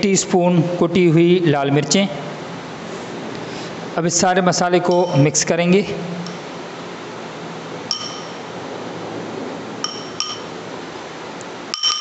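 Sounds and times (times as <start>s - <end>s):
spoon clinking against glass: 7.9s - 8.4s, 9.8s - 10.6s, 11.7s - 12.0s.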